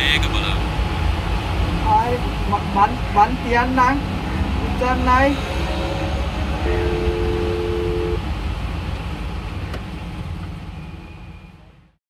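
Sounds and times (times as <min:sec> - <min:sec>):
traffic rumble: 0:00.0 - 0:12.0
two-note tone: 0:05.4 - 0:08.2.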